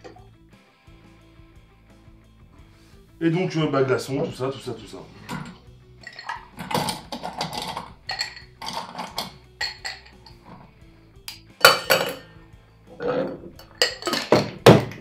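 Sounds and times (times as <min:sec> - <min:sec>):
faint background music: 0:00.0 - 0:15.0
ice cubes clinking: 0:05.3 - 0:10.7, 0:11.6 - 0:12.3, 0:13.0 - 0:14.6.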